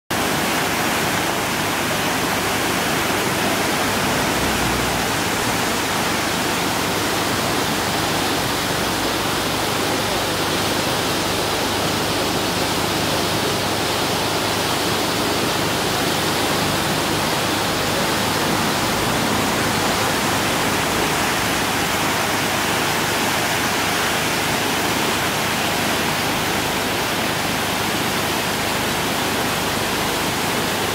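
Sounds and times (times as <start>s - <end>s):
river water rushing over rapids: 0.1s - 30.9s.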